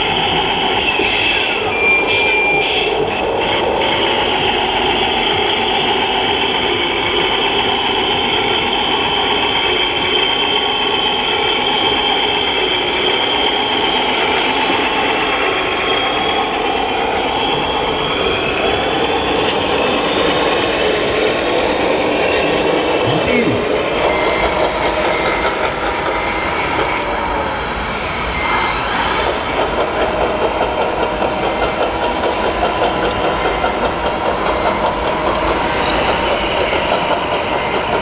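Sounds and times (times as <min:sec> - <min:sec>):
hall background din: 0:23.0 - 0:23.7.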